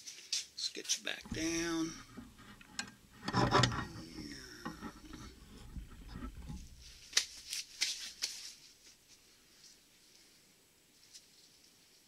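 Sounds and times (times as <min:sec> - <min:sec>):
metal rubbing and scraping: 0:01.2 - 0:07.2
metal clunk with ringing: 0:01.3 - 0:06.8.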